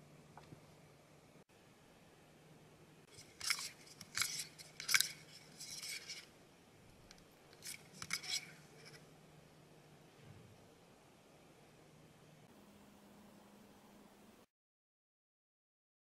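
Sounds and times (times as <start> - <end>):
plastic spoon scraping plastic cup: 3.1 - 6.3, 7.6 - 9.0.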